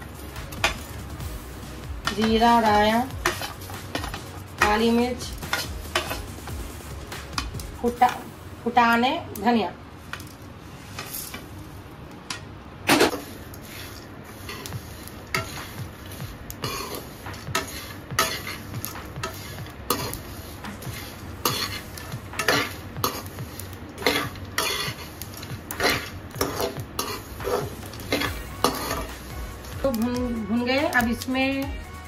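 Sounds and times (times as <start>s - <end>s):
metal spoon scraping a pan: 2.1s - 6.3s, 12.9s - 23.4s, 24.0s - 30.0s.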